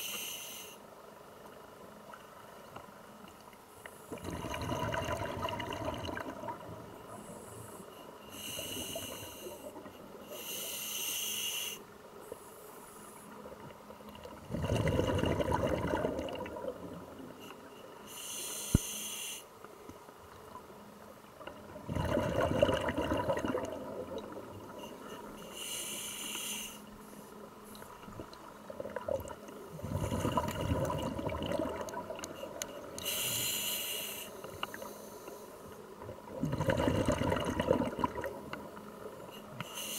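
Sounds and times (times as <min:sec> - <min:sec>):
bubbling exhalations: 0:04.2 - 0:06.6, 0:14.4 - 0:16.8, 0:21.8 - 0:24.3, 0:29.8 - 0:32.2, 0:36.3 - 0:38.4
hissing regulator inhalations: 0:07.1 - 0:13.3, 0:17.5 - 0:19.6, 0:24.8 - 0:27.3, 0:32.9 - 0:35.7, 0:39.3 - 0:39.9.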